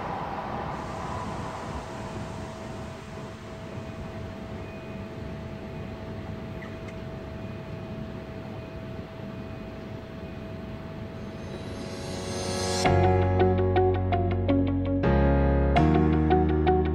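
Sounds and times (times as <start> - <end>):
faint steady whine: 0.0 - 12.9
railway station ambience: 0.0 - 13.0.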